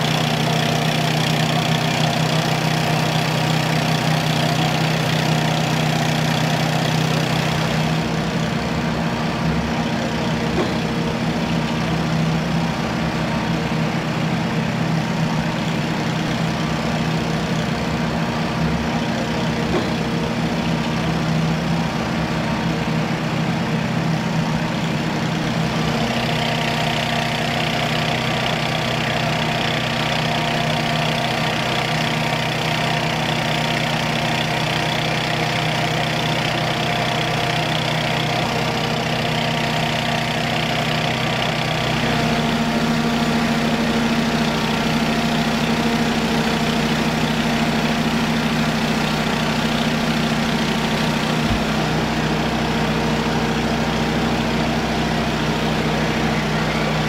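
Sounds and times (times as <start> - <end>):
large engine idling: 0.0 - 57.0.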